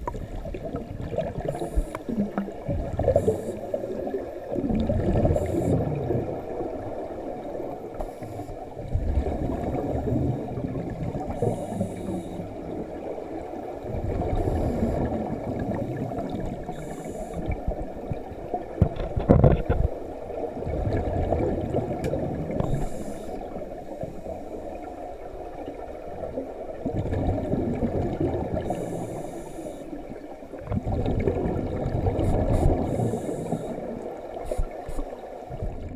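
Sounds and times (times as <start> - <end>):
exhaled air bubbling: 0.0 - 35.9
regulator hiss on inhale: 1.4 - 2.4, 3.0 - 4.0, 5.2 - 6.0, 8.0 - 8.7, 11.3 - 12.7, 14.3 - 15.2, 16.0 - 17.8, 22.6 - 24.8, 28.6 - 30.3, 32.2 - 35.2.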